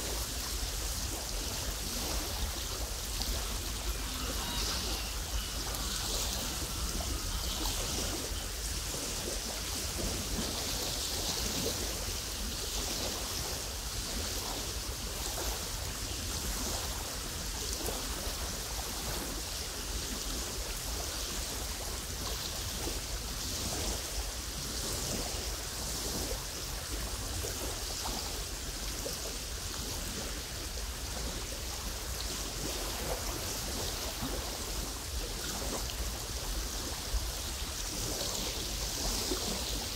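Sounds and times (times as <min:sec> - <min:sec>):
wind hissing: 0:00.0 - 0:13.9
waves lapping on gravel beach: 0:00.0 - 0:24.0
wind rumble on microphone: 0:00.0 - 0:39.9.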